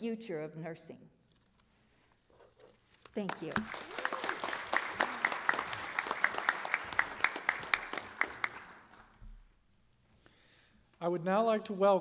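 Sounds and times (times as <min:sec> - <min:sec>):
sharp close claps: 0:03.0 - 0:09.2
audience applauding: 0:03.2 - 0:09.2.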